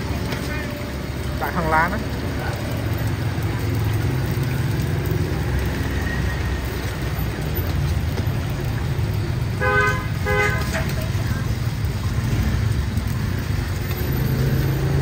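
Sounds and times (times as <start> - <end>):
cakes frying in oil: 0.0 - 15.0
horn toots: 9.6 - 11.1.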